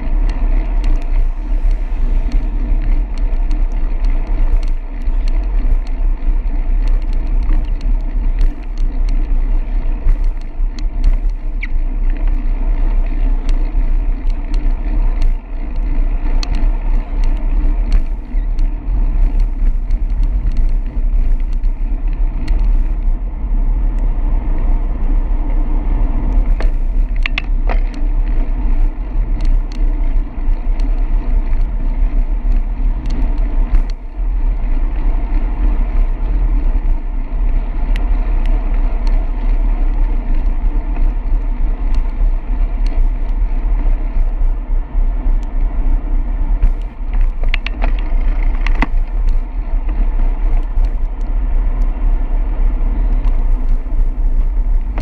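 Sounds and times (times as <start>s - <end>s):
wind buffeting microphone: 0.0s - 55.0s
small clicks: 0.1s - 23.2s, 26.2s - 34.0s, 46.6s - 55.0s.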